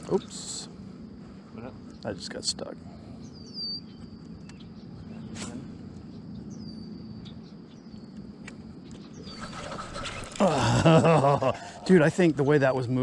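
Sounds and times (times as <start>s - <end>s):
steady low hum: 0.0s - 13.0s
bird whistling call: 9.2s - 10.5s.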